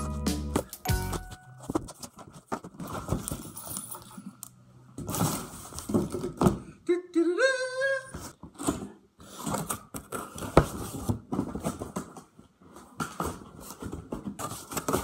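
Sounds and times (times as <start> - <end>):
cardboard rustling and scraping: 0.6 - 4.2, 5.0 - 6.4, 8.3 - 15.0.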